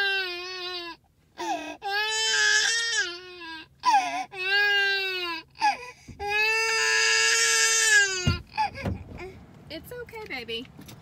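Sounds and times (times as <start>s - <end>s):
toddler crying: 0.0s - 8.8s.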